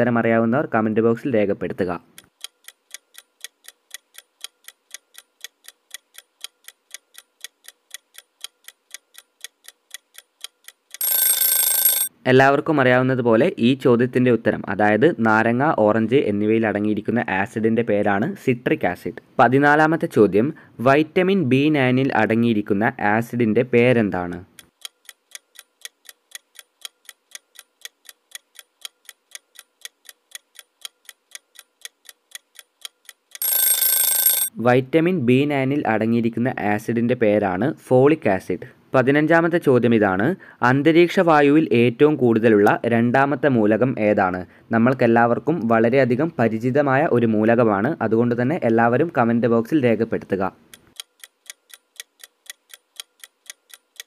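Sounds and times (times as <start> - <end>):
clock ticking sound effect: 2.2 - 12.1, 24.6 - 34.5, 50.7 - 54.0.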